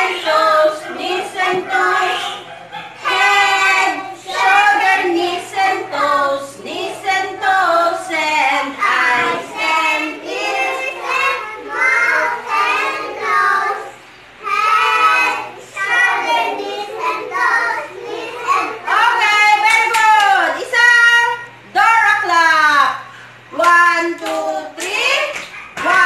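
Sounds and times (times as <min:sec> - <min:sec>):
children singing: 0:00.0 - 0:19.2.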